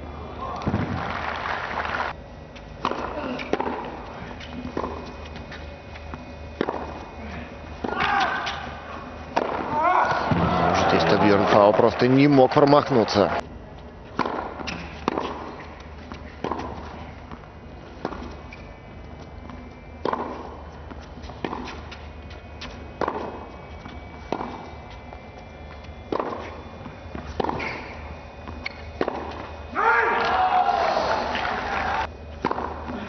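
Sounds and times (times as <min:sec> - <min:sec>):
crowd cheering: 0:00.4 - 0:02.2, 0:09.6 - 0:13.4, 0:29.8 - 0:32.1
tennis ball hit with rackets: 0:02.8 - 0:04.0, 0:04.7 - 0:05.1, 0:06.2 - 0:07.0, 0:07.8 - 0:08.7, 0:09.4 - 0:10.6, 0:14.1 - 0:15.7, 0:16.4 - 0:18.4, 0:19.4 - 0:22.0, 0:22.6 - 0:25.2, 0:26.1 - 0:29.5, 0:32.4 - 0:33.0.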